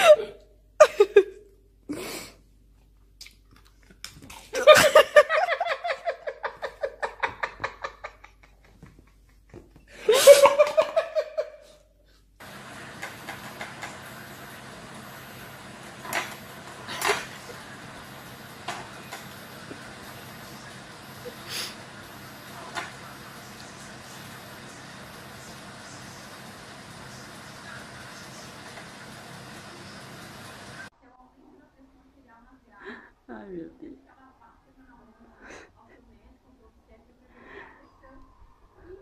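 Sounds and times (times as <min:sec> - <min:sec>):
person laughing: 0:00.0 - 0:02.2, 0:04.5 - 0:11.8.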